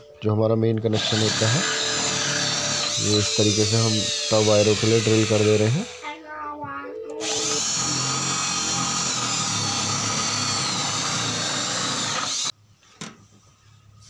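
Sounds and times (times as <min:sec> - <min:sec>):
electric drill whining: 0:00.9 - 0:06.0, 0:07.2 - 0:12.5.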